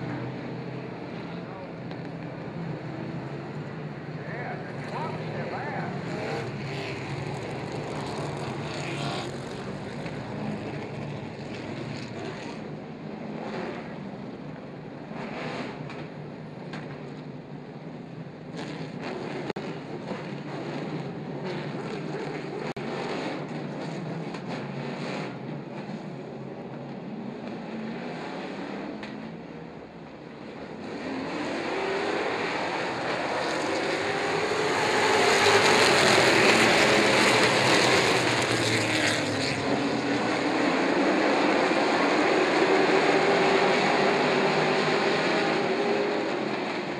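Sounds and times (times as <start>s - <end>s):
race truck engines passing: 0.0s - 14.0s, 30.4s - 46.9s.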